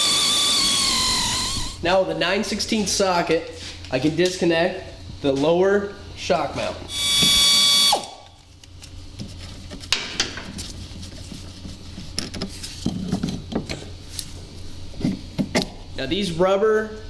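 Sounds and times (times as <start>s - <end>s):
air ratchet whining: 0.0s - 1.8s, 6.9s - 8.3s.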